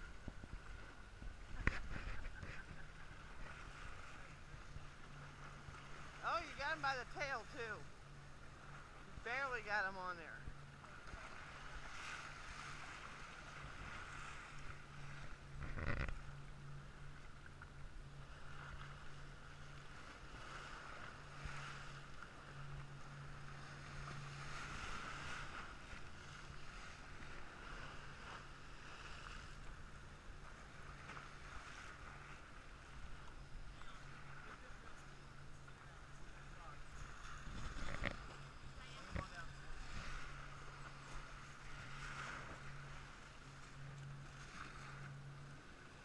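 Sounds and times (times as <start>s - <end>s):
wind on microphone: 0.0s - 5.0s, 37.0s - 42.7s
waves lapping against seawall: 0.0s - 46.0s
steady low drone: 10.4s - 46.0s.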